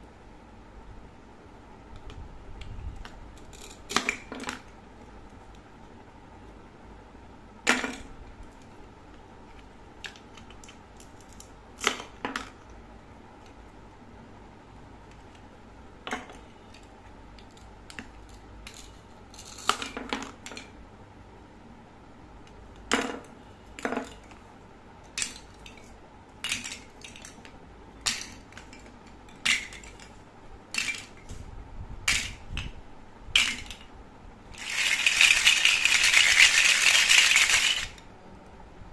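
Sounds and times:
plastic toys clacking into basket: 30.7 - 31.2, 33.4 - 33.8, 34.6 - 38.0
basket of toys rattling: 34.6 - 38.0.

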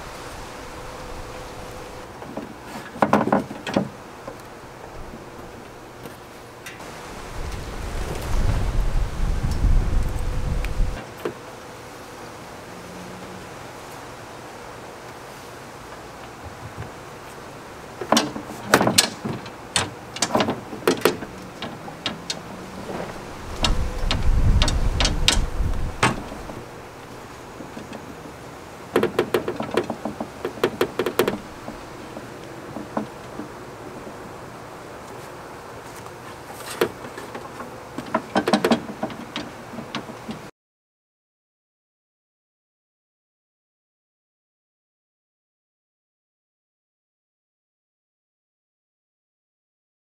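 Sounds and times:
poles knocking against boat: 2.2 - 4.4, 18.0 - 26.7, 27.5 - 33.8, 36.6 - 40.5.

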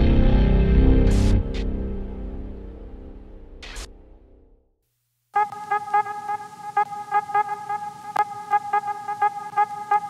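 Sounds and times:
background music with horn-like note: 5.4 - 10.0
intro music: 5.4 - 10.0.

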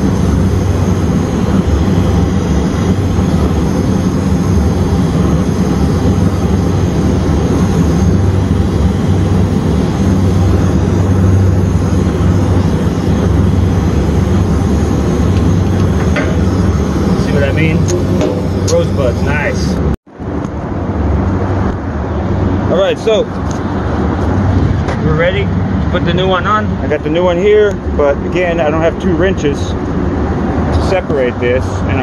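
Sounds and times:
torch flame rushing: 0.0 - 20.0.

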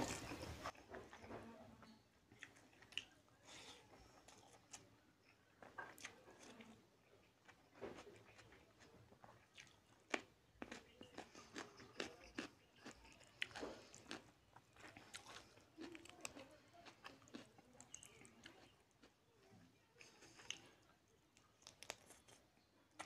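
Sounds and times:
chewing mouth sounds: 7.5 - 19.1.

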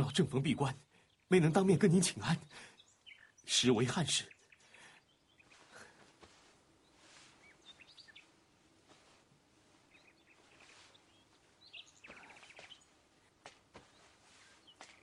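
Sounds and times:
faint bird chirps: 0.2 - 15.0.

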